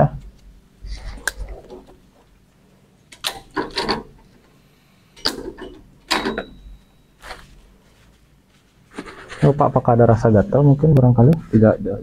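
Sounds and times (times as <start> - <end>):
plastic electrodes clicking and clattering: 3.1 - 4.5.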